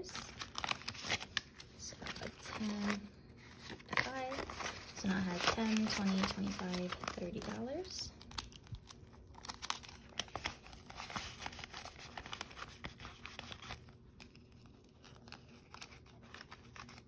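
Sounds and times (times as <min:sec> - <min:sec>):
paper banknotes rustling: 0:00.0 - 0:17.0
plastic pouch crinkling: 0:00.0 - 0:17.0.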